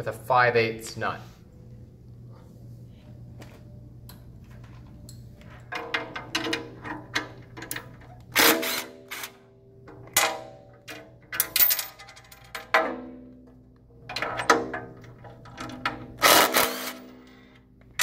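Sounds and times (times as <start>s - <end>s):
impact driver bursts: 8.4s - 9.3s, 16.2s - 17.2s.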